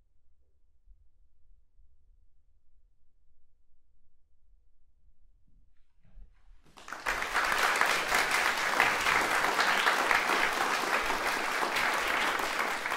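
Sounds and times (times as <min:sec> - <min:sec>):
audience applause: 0:06.7 - 0:12.9.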